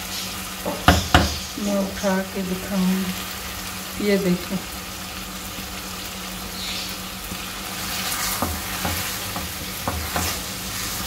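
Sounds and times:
curry sizzling in a pot: 0.0 - 11.0
spatula knocking against pot: 0.7 - 1.4.

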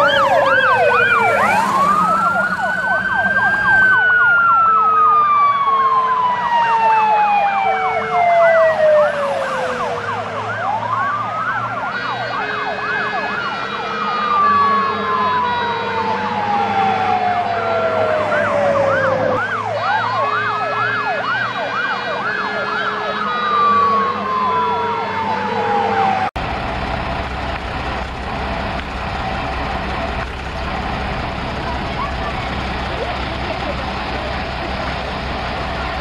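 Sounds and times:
two-tone siren horn: 0.0 - 26.4
warbling siren yelp: 0.0 - 26.4
rising and falling siren: 0.0 - 27.6, 28.3 - 36.0
low engine rumble: 25.6 - 36.0.

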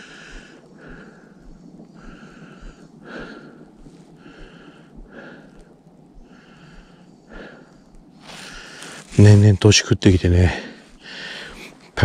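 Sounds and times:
man breathing: 0.0 - 9.3, 10.4 - 12.0.

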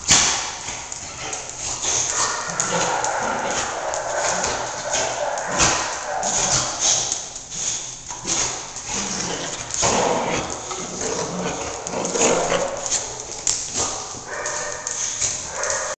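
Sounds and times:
dogs growling and vocalizing: 0.0 - 16.0
dogs scuffling: 0.0 - 16.0
high drawn-out dog call: 2.1 - 7.0.

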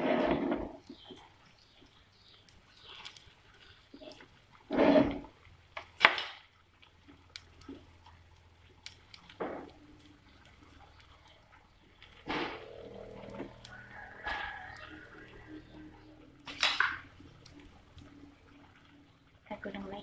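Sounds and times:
plastic spatula scraping a frying pan: 0.0 - 0.9, 4.7 - 5.3.

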